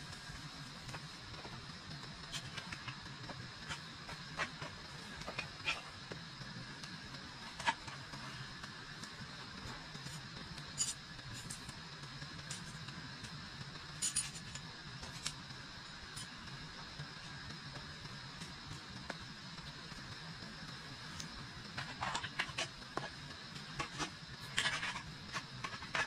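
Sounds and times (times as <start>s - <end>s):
faint steady hiss: 0.0s - 26.0s
metal camp table clicks and clinks: 10.7s - 11.7s, 14.0s - 15.4s, 21.8s - 22.7s.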